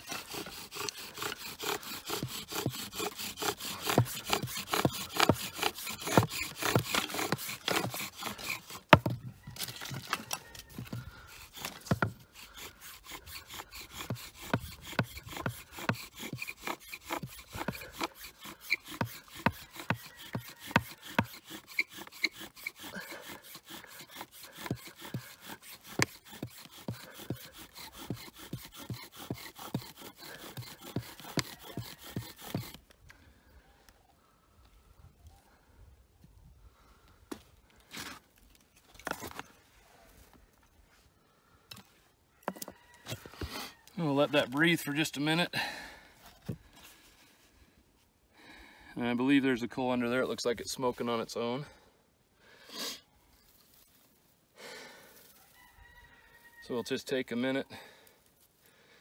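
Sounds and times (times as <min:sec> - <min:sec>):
bow drill spindle grinding: 0:00.0 - 0:32.9.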